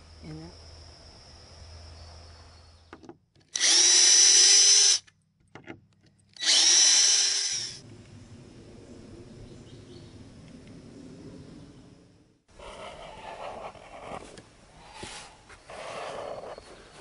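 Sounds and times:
electric drill whining: 3.5 - 5.1, 6.4 - 7.8.

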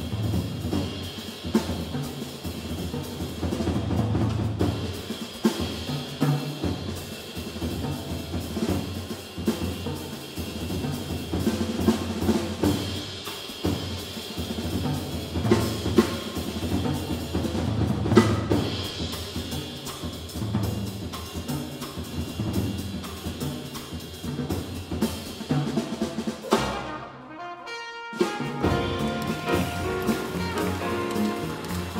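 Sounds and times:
jazz drum solo: 0.0 - 31.9
washing cymbals: 28.2 - 31.9.

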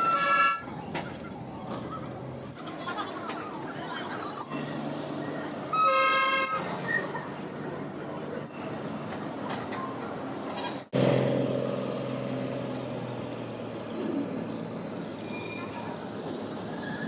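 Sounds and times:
train horn toot: 5.7 - 6.7.

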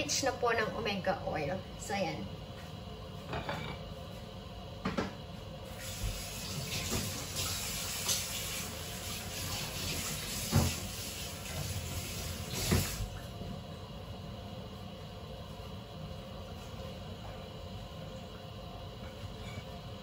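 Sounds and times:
water hissing and rushing: 5.7 - 13.1.

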